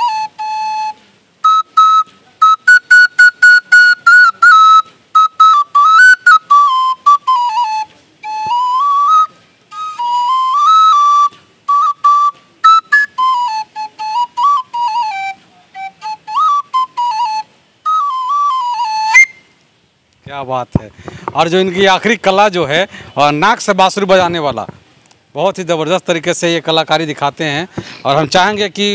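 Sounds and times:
bamboo flute melody: 0.0s - 19.9s
breaths: 20.9s - 21.4s, 22.8s - 23.2s, 27.7s - 28.1s.

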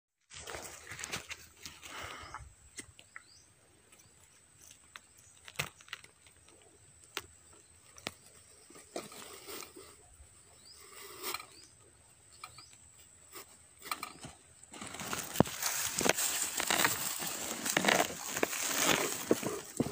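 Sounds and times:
soft rustles: 13.3s - 19.9s.

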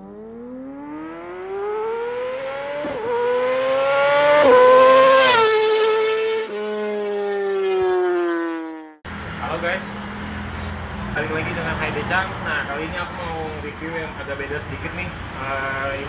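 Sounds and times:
rising and falling engine tone: 0.0s - 10.1s.

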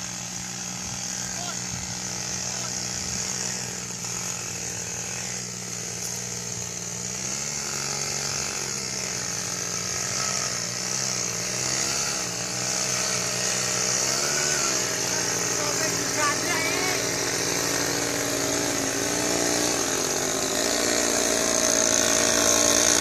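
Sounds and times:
small motorbike engine running: 0.0s - 23.0s.

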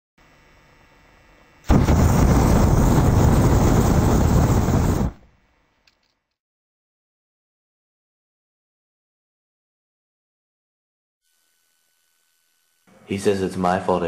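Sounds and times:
loud blast of noise: 1.7s - 5.2s.

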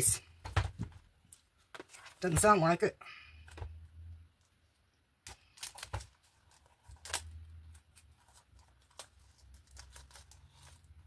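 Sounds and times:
plastic film crinkling: 5.4s - 11.0s.

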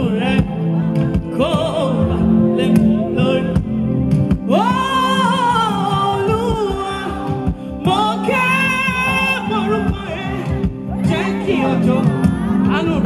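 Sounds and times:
band backing chord: 0.0s - 13.0s
woman singing gospel: 4.5s - 12.9s.

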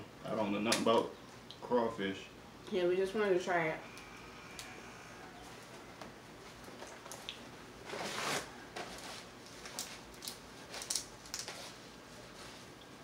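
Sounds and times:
crawfish shell cracking: 9.4s - 11.6s.

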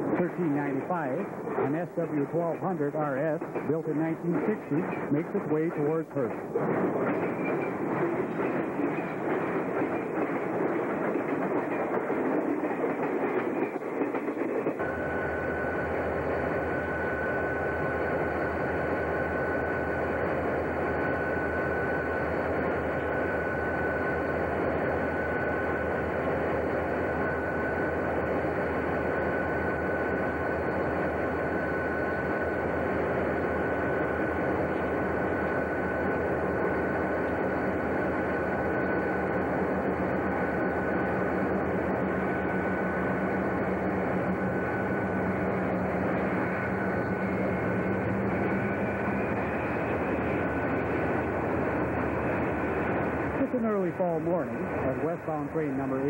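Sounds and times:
constant high tone: 0.0s - 12.0s, 14.7s - 56.0s
diesel locomotive and train passing: 0.0s - 56.0s.

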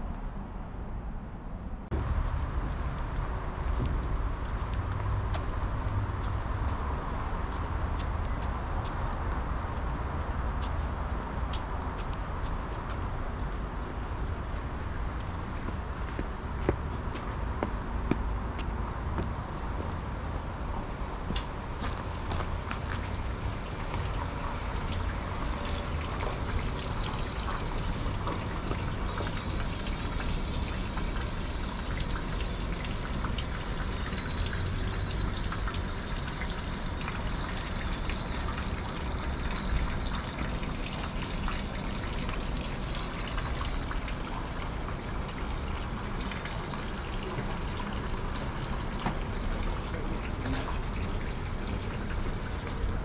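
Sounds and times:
water trickling into stone basin: 21.8s - 53.0s.

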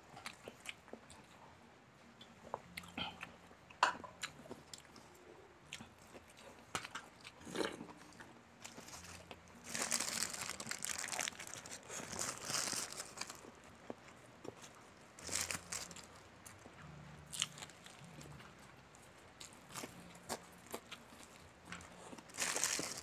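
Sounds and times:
chewing with wet clicks: 0.1s - 1.4s, 2.2s - 8.3s
fried chicken crackling and crunching: 6.7s - 13.6s, 15.2s - 16.3s, 17.3s - 18.5s, 19.4s - 23.0s.

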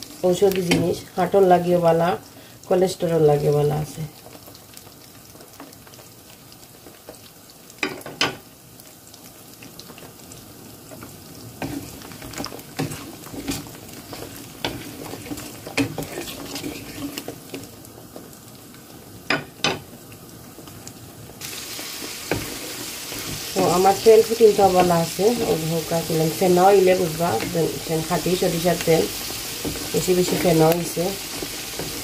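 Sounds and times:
garlic and chillies sizzling in oil: 0.0s - 32.0s
spatula scraping and knocking pan: 10.9s - 17.7s, 29.2s - 32.0s.

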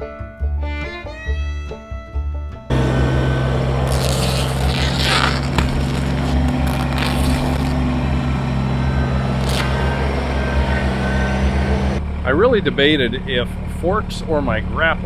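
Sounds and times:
sod scraping and tearing: 2.7s - 12.0s
diesel tractor engine running: 2.7s - 15.0s.

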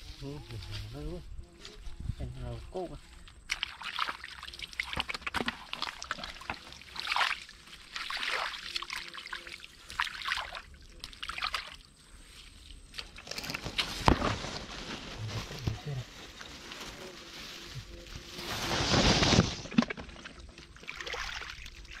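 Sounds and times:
water sloshing and splashing: 3.5s - 14.7s, 19.5s - 22.0s.

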